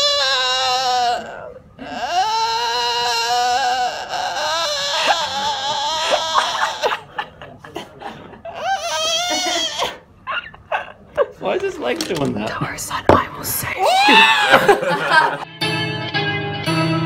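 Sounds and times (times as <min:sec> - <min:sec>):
person wailing: 0:00.0 - 0:07.2, 0:08.5 - 0:10.0, 0:13.8 - 0:15.3.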